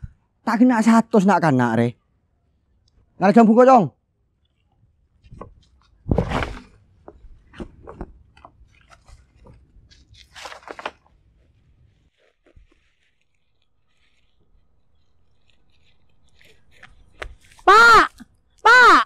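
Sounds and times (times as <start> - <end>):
pole knocking through branches: 5.3 - 8.2
leaves rustling: 8.7 - 17.7.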